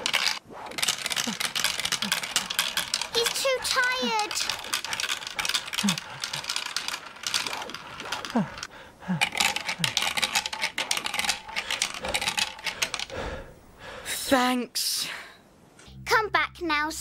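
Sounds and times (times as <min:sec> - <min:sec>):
marbles rattling through marble run: 0:00.0 - 0:13.1.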